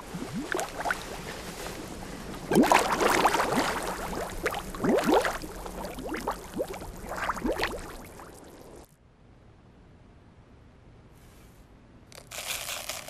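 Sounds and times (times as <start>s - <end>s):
water sloshing in wet clay: 0.0s - 8.8s.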